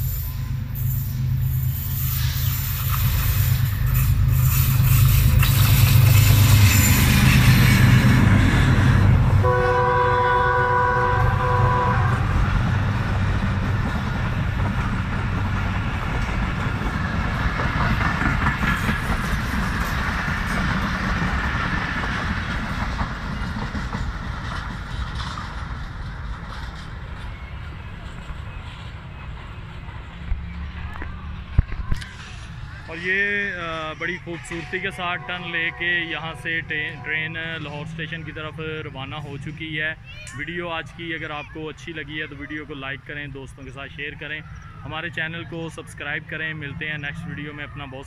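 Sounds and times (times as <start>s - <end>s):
diesel locomotive rumble: 0.0s - 48.0s
train wheels clacking on rail joints: 1.5s - 9.4s, 12.2s - 30.7s
train horn blast: 6.7s - 12.7s, 34.5s - 37.7s.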